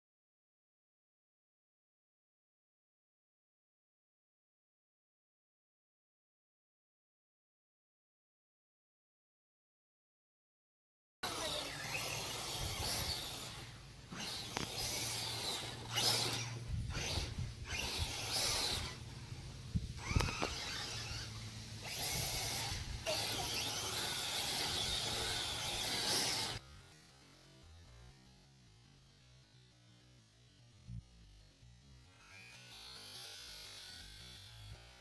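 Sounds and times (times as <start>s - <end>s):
electric motor whining: 11.2s - 28.4s, 31.9s - 35.0s.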